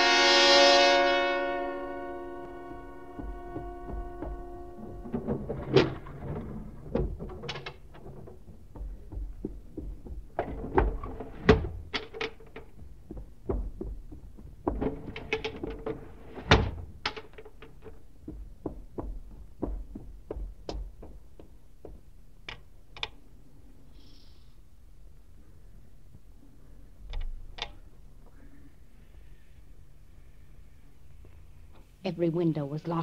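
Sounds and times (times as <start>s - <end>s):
windows shut and latched: 14.7s - 17.3s.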